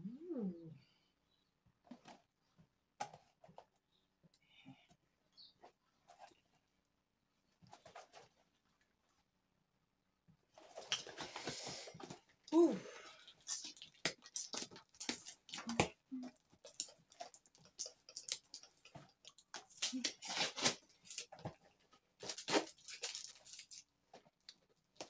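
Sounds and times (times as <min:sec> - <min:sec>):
cardboard packaging tearing: 0:13.2 - 0:21.6, 0:22.2 - 0:23.9.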